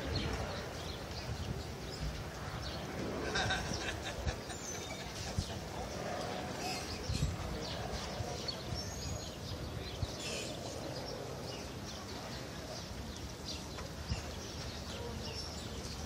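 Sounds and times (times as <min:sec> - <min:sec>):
wind buffeting microphone: 0:00.0 - 0:16.0.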